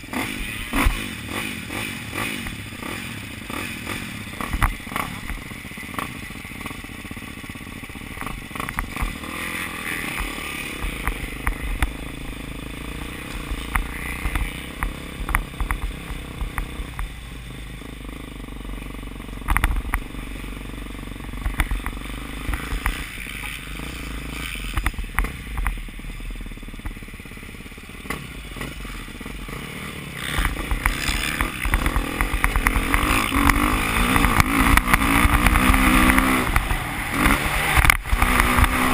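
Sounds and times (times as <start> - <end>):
motorbike engine running: 0.0 - 38.9
sharp clicks and rattles: 8.1 - 9.3, 13.2 - 17.2, 19.4 - 20.1, 21.4 - 23.7, 30.2 - 38.9.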